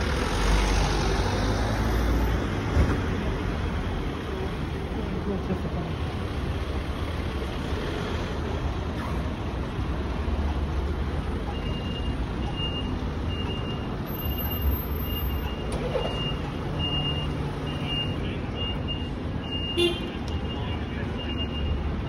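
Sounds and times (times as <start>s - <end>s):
street traffic: 0.0s - 22.0s
reversing alarm beeping: 11.5s - 22.0s.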